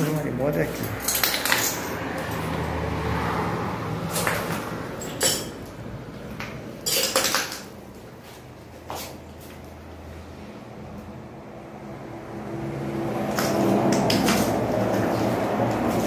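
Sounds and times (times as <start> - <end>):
sharp clinks and knocks: 0.0 - 2.7, 4.1 - 5.8, 6.5 - 7.8.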